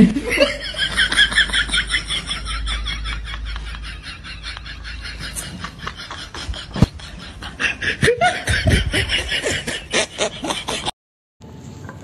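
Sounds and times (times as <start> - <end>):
person snickering: 3.2 - 10.9.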